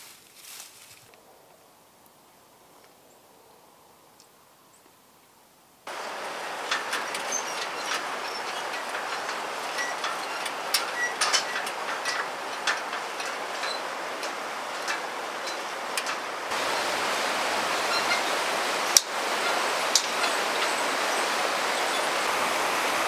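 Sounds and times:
footsteps on metal slats: 5.9s - 16.7s, 19.0s - 20.8s
river rushing: 5.9s - 23.0s.

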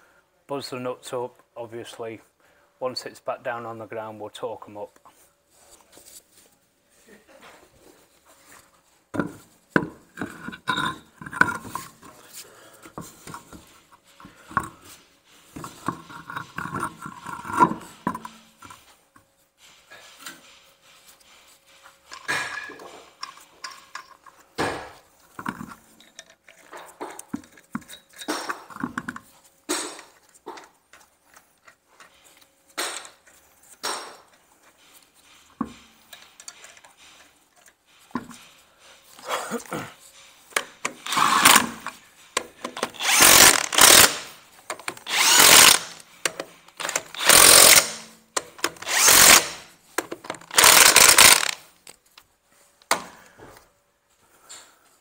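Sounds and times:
impact wrench buzzing: 40.9s - 42.0s, 42.8s - 49.7s, 50.3s - 51.7s.

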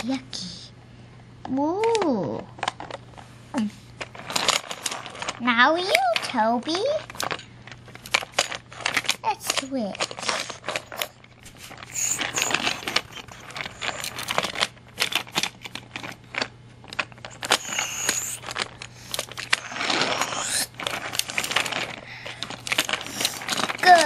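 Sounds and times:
toy trains clattering on plastic track: 4.3s - 7.4s, 8.0s - 11.1s, 11.8s - 24.0s.

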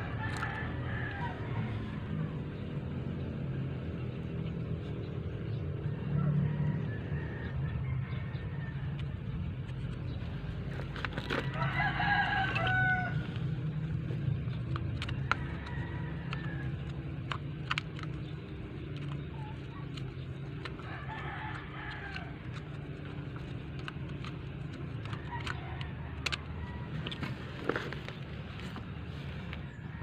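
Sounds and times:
steady low hum: 0.0s - 30.0s
rooster crowing: 11.4s - 13.5s, 15.3s - 16.8s, 20.8s - 22.4s
handling clicks: 14.2s - 28.9s.

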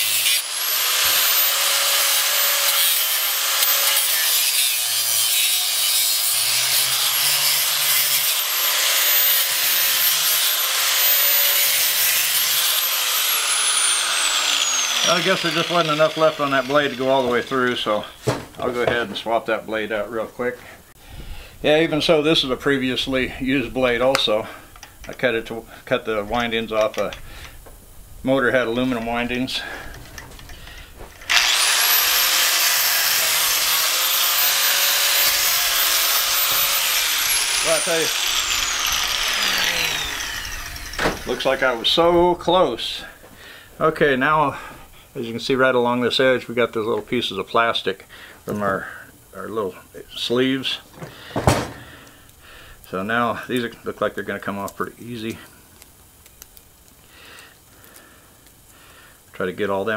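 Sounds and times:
grinder motor whine: 0.0s - 4.9s, 6.6s - 17.9s, 31.2s - 42.0s
angle grinder cutting metal: 0.0s - 18.2s, 31.2s - 42.1s.

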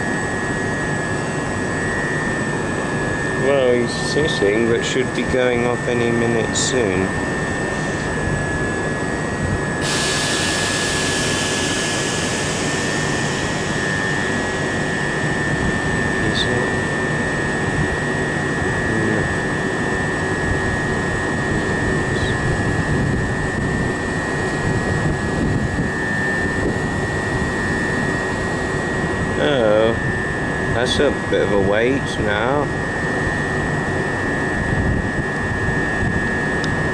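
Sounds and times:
high-pitched whine: 0.0s - 36.9s
air hiss: 9.8s - 15.2s
train equipment hum: 9.8s - 16.9s.

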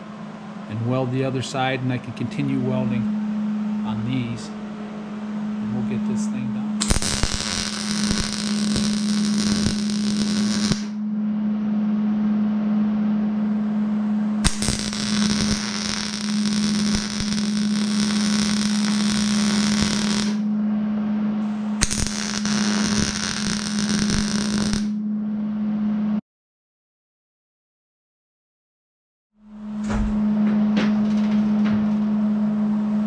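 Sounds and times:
low hum: 0.0s - 26.2s, 29.4s - 33.0s
arc welding crackling: 6.8s - 11.0s, 14.4s - 20.5s, 21.8s - 25.0s.

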